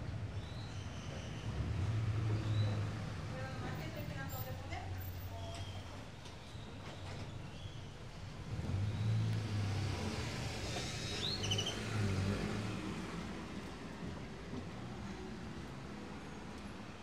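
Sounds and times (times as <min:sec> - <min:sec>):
vehicle engine passing by: 0:08.4 - 0:14.7.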